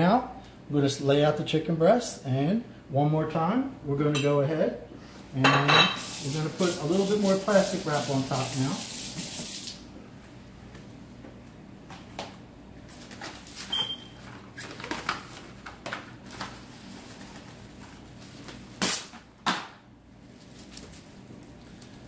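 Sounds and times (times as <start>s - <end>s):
cling wrap rustling: 12.9s - 19.1s, 20.2s - 22.0s.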